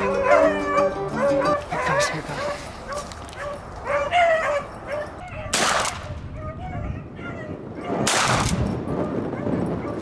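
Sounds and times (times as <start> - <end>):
hounds baying: 0.0 - 5.5
shotgun shot: 5.5 - 6.1, 8.0 - 8.6.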